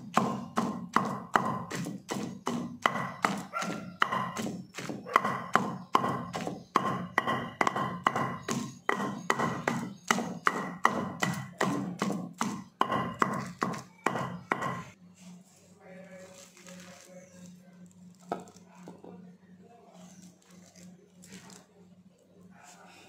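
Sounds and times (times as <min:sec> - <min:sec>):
pestle pounding in stone mortar: 0:00.0 - 0:15.0.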